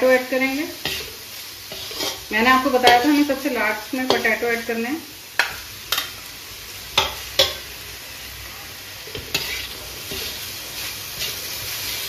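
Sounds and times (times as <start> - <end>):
vegetables sizzling in oil: 0.0 - 12.0
spatula scraping and clinking: 0.8 - 3.1, 9.1 - 10.4.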